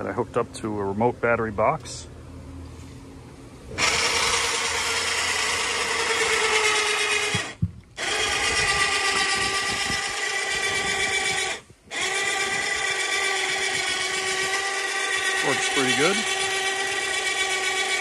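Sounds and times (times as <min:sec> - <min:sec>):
electric winch motor whining: 0:03.7 - 0:18.0.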